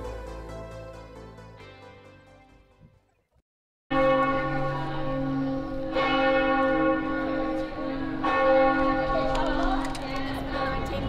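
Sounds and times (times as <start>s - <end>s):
bell tolling: 3.9s - 9.4s.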